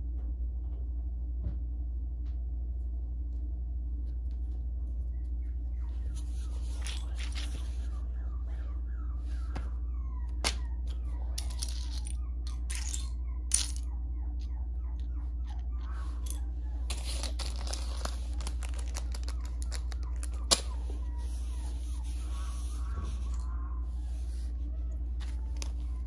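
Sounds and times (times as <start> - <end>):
steady low hum: 0.0 - 26.0
plastic bricks clattering on floor: 16.2 - 20.7.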